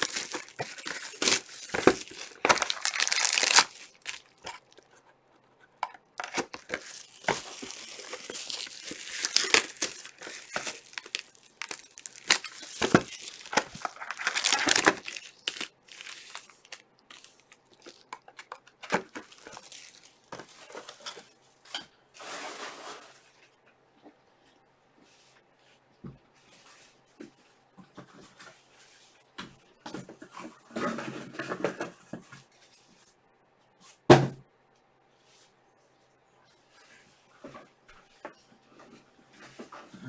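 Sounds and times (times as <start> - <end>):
plastic wrap tearing and crinkling: 0.0 - 4.8, 6.0 - 21.1.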